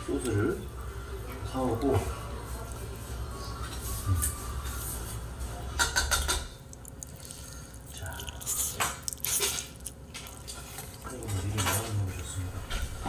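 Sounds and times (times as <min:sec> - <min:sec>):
utensil clinking against pot: 0:05.8 - 0:07.4, 0:08.2 - 0:12.4.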